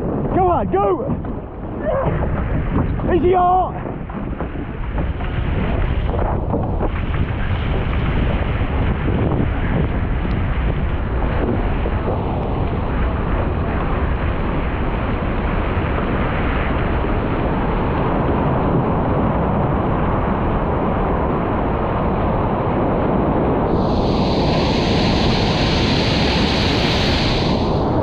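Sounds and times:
wind buffeting microphone: 0.0 - 28.0
whitewater hissing along hull: 23.6 - 28.0.

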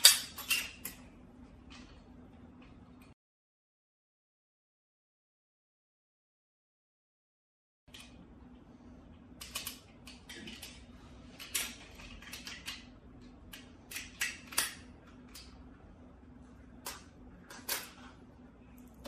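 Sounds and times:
steady low hum: 0.0 - 3.2, 7.9 - 19.0.

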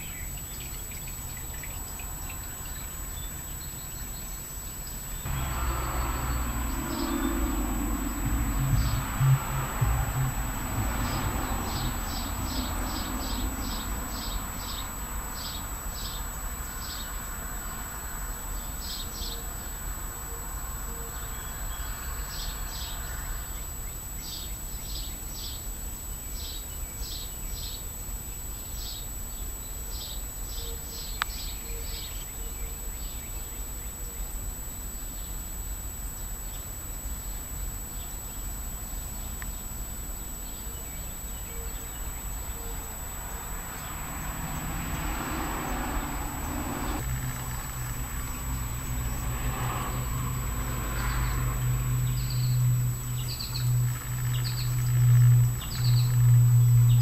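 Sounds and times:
low background hum: 5.2 - 15.0, 40.8 - 57.0
nestlings chirping: 51.3 - 57.0.

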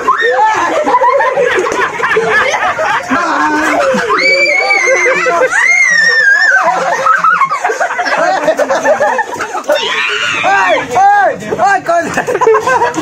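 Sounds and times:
high-pitched screams: 0.0 - 0.8, 4.0 - 7.6, 9.7 - 10.9
excited chatter: 0.0 - 13.0
people laughing: 0.0 - 13.0.

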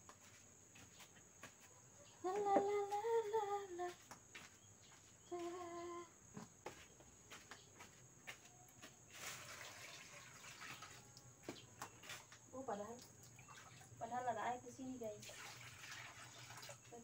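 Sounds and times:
woman humming: 5.2 - 6.2
water scooped from bucket: 9.1 - 11.2, 15.2 - 16.9.

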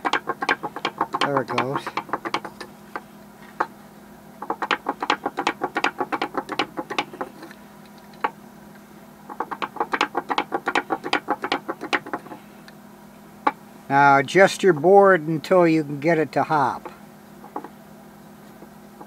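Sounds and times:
wooden toy legs clacking: 0.0 - 2.7, 4.4 - 7.5, 9.3 - 12.4.

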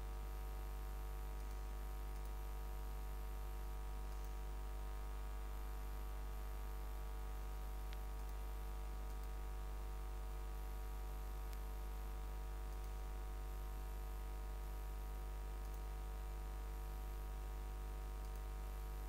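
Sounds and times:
electrical hum with hiss: 0.0 - 19.0
faint clicks: 18.2 - 18.5.

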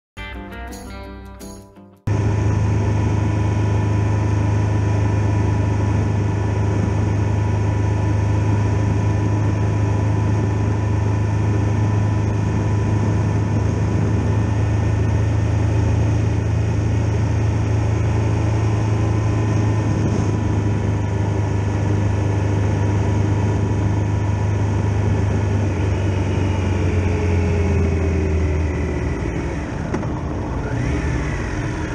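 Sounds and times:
motorcycle engine droning: 2.1 - 31.9.

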